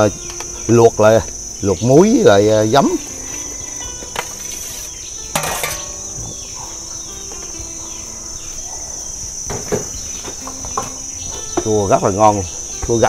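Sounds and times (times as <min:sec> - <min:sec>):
high insect drone: 0:00.0 - 0:13.0
metal plate clink: 0:04.2 - 0:06.4
clatter and splash in pot: 0:05.4 - 0:06.0.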